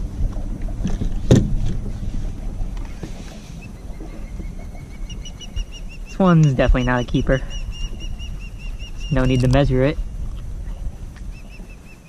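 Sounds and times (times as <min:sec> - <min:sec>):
water around a kayak: 0:00.0 - 0:12.0
wind rumble: 0:00.0 - 0:12.0
sharp knocks: 0:00.8 - 0:01.9.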